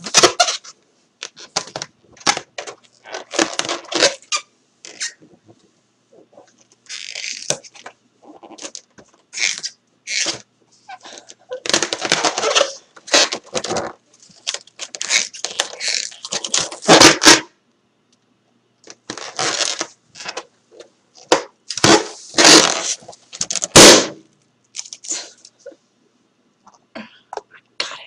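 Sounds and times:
balloon squeaking and crackling: 0:00.0 - 0:05.5, 0:06.1 - 0:17.5, 0:19.0 - 0:20.5, 0:21.2 - 0:24.2
balloon bursting pop: 0:23.7 - 0:24.2.

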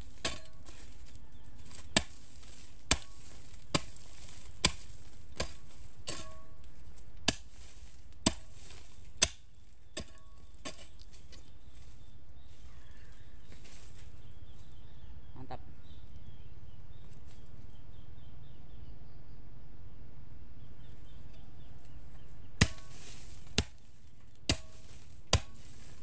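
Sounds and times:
hoe chopping into stony soil: 0:00.0 - 0:12.0, 0:22.5 - 0:26.0.

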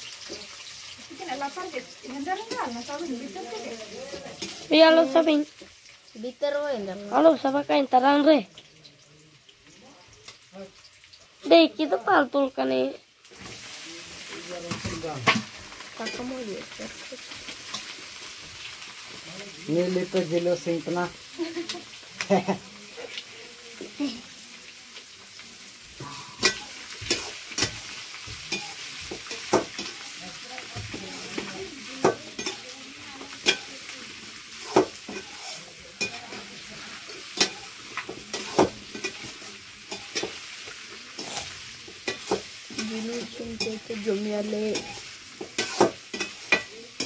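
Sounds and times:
chicken sizzling in a pan: 0:00.0 - 0:47.0
metal ladle scraping and knocking pan: 0:26.0 - 0:29.9.

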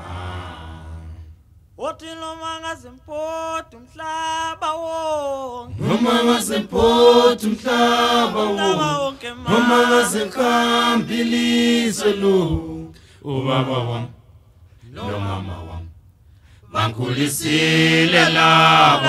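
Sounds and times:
unaccompanied chanted singing: 0:00.0 - 0:01.0, 0:05.7 - 0:14.2, 0:14.8 - 0:15.9, 0:16.6 - 0:19.0.

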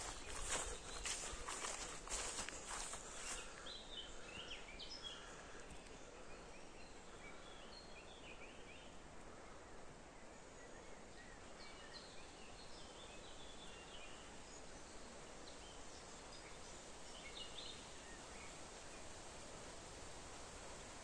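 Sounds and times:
small birds chirping: 0:00.0 - 0:09.0
steady low hiss: 0:00.0 - 0:21.0.

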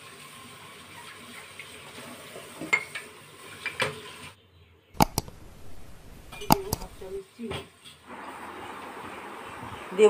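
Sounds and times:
sharp clicks: 0:05.0 - 0:07.1.

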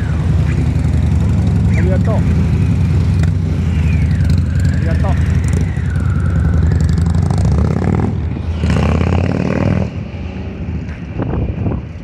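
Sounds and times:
motorcycles accelerating: 0:00.0 - 0:12.0.

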